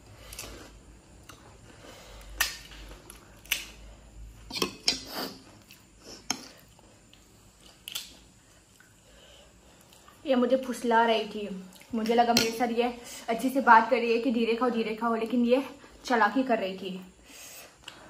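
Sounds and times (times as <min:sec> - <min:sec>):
metal spoon scraping a plate: 0:04.5 - 0:05.4.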